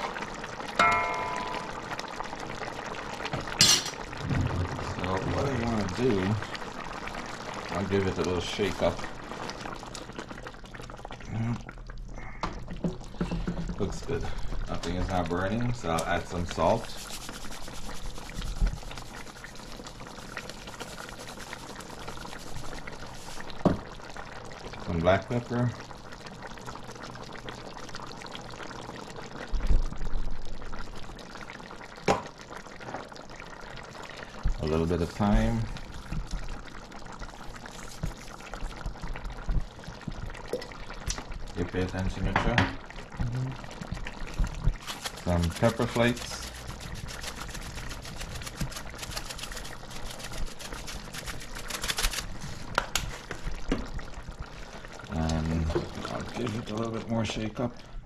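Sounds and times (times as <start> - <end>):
curry bubbling in pot: 0.0 - 58.0
shaker bottle rattling flakes: 16.7 - 19.1, 44.7 - 52.4.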